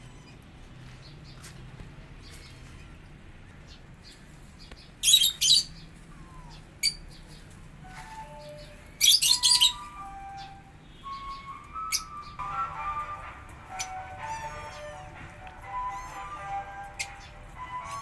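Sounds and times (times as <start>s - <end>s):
lovebirds chirping shrilly: 4.9s - 13.1s.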